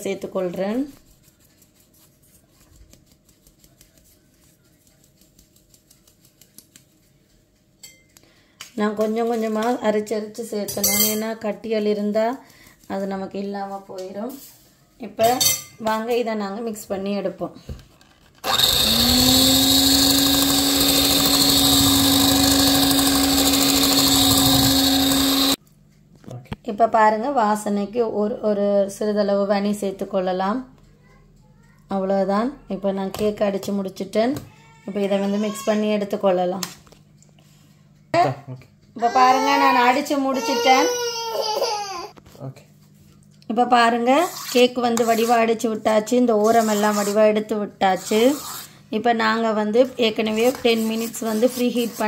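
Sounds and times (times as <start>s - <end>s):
electric hand mixer humming: 18.4s - 25.6s.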